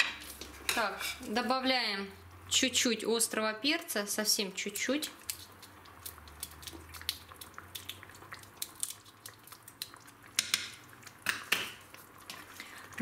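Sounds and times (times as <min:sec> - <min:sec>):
sauce simmering with pops: 0:04.6 - 0:13.0.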